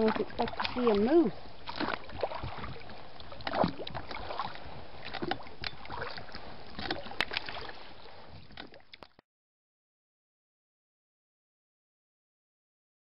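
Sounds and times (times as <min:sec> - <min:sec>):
water sloshing around boat: 0:00.0 - 0:09.2.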